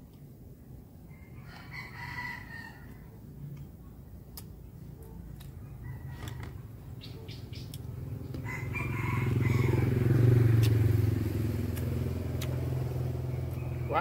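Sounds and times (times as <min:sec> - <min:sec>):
vehicle engine passing by: 0:06.1 - 0:14.0.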